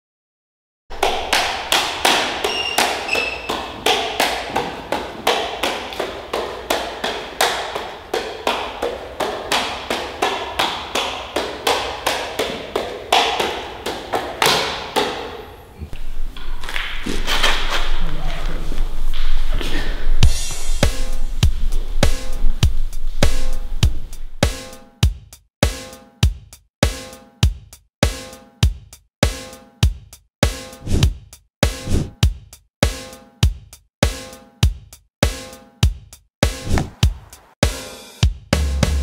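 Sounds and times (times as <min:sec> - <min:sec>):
juggling clubs slapping into hands: 0:00.9 - 0:15.5, 0:16.4 - 0:19.9, 0:36.4 - 0:37.4.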